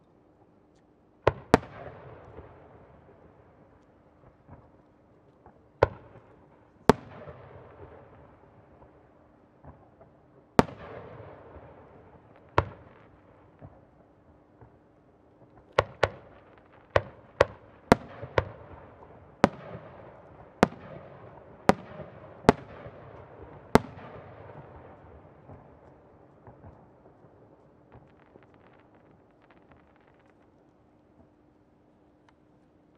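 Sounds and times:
firework bangs with echo: 15.7s - 27.2s
firework crackling: 26.4s - 31.0s.

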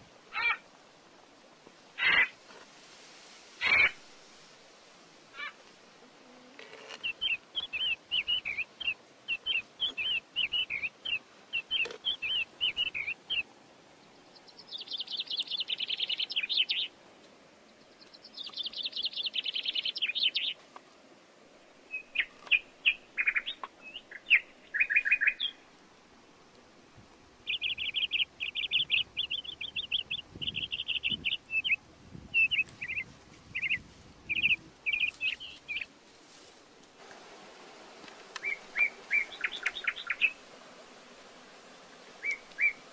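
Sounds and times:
rapid bird trills: 3.6s - 4.0s, 6.7s - 13.4s, 38.4s - 40.4s.

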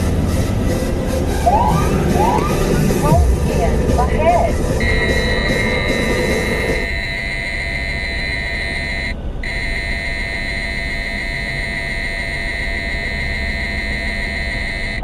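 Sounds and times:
car road noise: 0.0s - 15.0s
high electronic alert tone: 1.5s - 9.6s.

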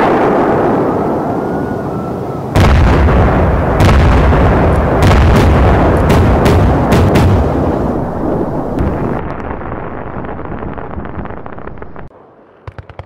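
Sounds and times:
sharp firework cracks: 2.6s - 8.1s
firework bang: 2.6s - 12.1s
rumbling: 2.6s - 12.2s.

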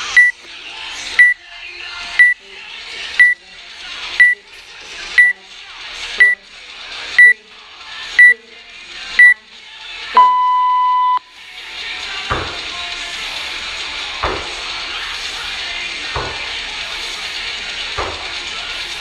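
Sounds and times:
background music: 0.0s - 19.0s
countdown timer beeps: 0.2s - 0.4s, 4.2s - 4.4s, 10.2s - 11.3s.

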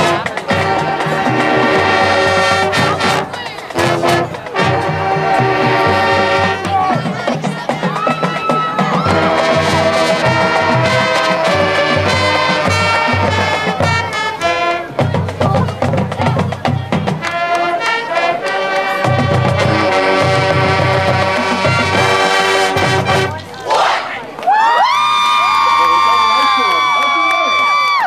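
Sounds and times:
brass playing chords and melody: 0.0s - 7.5s, 8.9s - 24.2s
bass drums and percussion: 0.0s - 17.8s, 18.9s - 23.6s.

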